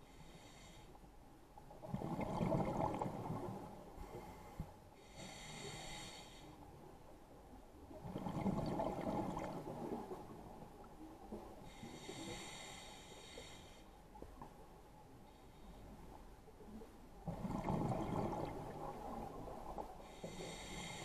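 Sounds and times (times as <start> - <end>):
hissing inhale through regulator: 4.0 - 6.6, 11.7 - 14.0, 20.1 - 21.0.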